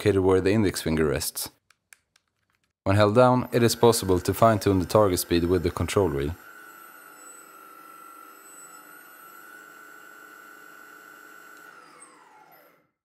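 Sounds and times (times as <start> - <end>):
electric motor whine: 3.2 - 13.0.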